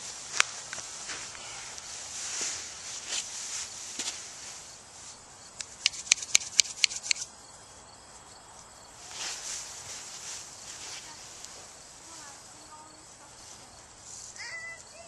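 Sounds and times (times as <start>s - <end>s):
clothing and foam mat rustling: 0.0s - 5.2s, 9.0s - 15.0s
sharp ringing clicks: 5.6s - 7.2s.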